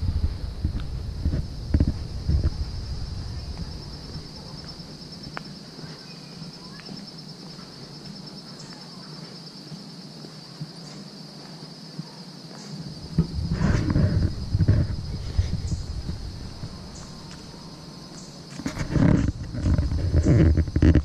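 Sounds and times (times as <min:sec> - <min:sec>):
wind buffeting microphone: 0:00.0 - 0:07.0, 0:12.8 - 0:21.0
insects trilling: 0:00.0 - 0:21.0.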